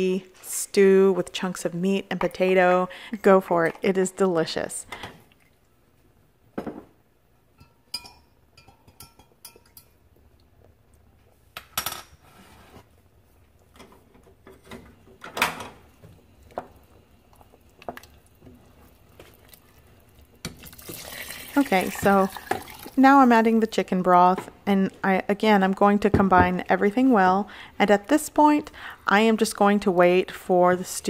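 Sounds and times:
cookware and utensils clinking: 7.6 - 10.0.

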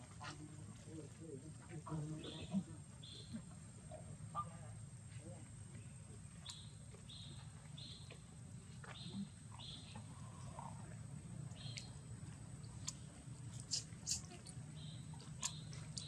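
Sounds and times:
high-pitched chirping calls: 13.6 - 15.7.

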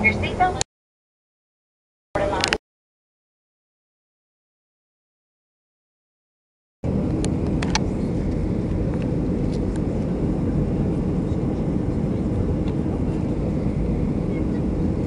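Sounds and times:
jet engines rumbling in cabin: 0.0 - 0.6, 6.8 - 15.0
rushing airflow: 6.9 - 15.0.

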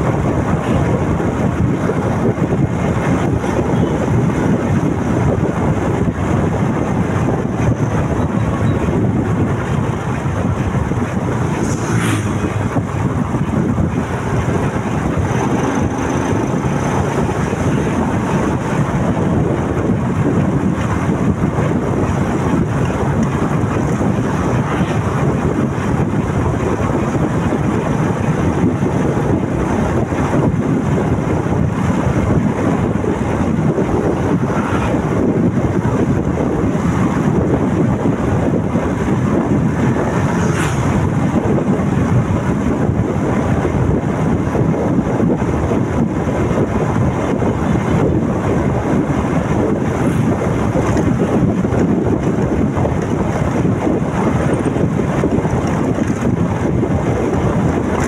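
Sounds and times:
road noise: 0.0 - 58.0
wind rushing over microphone: 0.0 - 58.0
motorcycle engine: 0.8 - 35.5.

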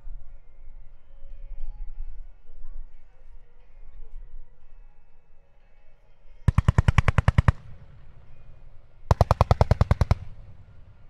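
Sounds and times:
rumbling echo: 6.5 - 11.0.

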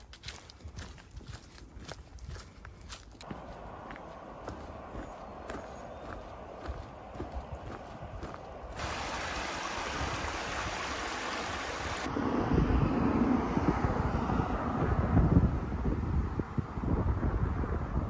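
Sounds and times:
footsteps on dirt trail: 0.0 - 10.2
wind buffeting microphone: 0.2 - 18.0
creek rushing: 3.3 - 12.1.

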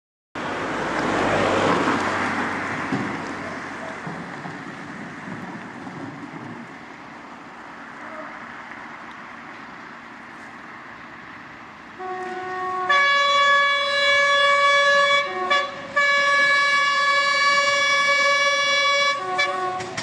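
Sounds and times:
train two-tone horn: 8.0 - 8.4, 12.0 - 20.0.

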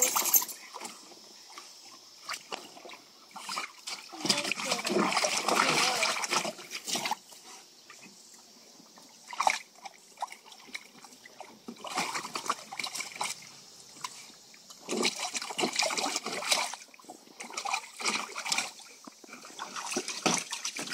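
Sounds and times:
water trickling: 0.0 - 7.2
water splashing in a plastic pool: 0.0 - 20.9.

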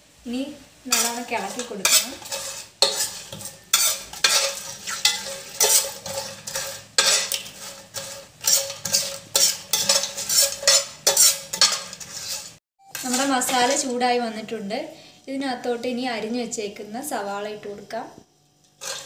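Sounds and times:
ghee sizzling: 0.0 - 19.0
spoon scraping a pot: 0.9 - 14.0, 18.8 - 19.0.

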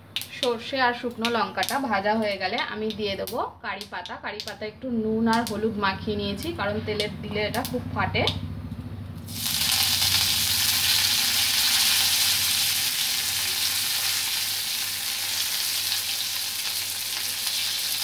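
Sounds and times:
leaves sizzling in hot oil: 9.3 - 18.0.

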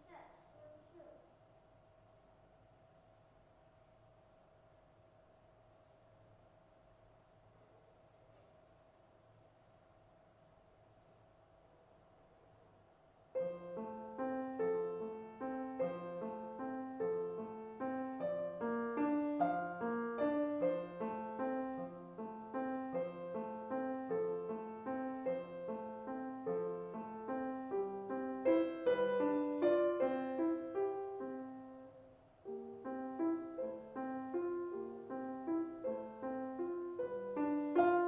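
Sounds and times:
solo grand piano cradle song: 13.3 - 38.0.

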